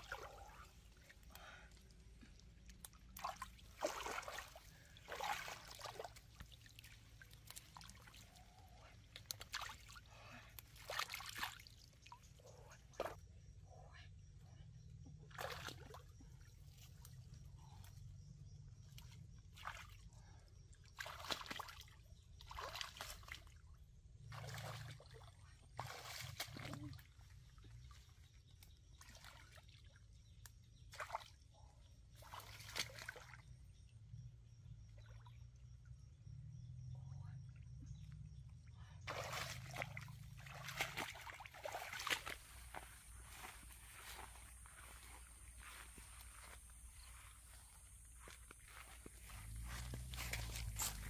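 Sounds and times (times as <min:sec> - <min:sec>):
water sloshing and splashing: 0:00.0 - 0:13.2, 0:15.3 - 0:17.4, 0:20.9 - 0:23.6, 0:24.2 - 0:30.2, 0:32.1 - 0:33.6, 0:39.0 - 0:51.0.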